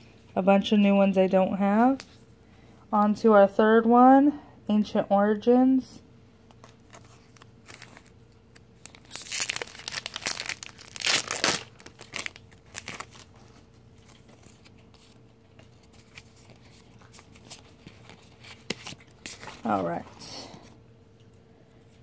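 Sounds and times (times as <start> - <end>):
foil wrapper tearing and crinkling: 6.7 - 14.7.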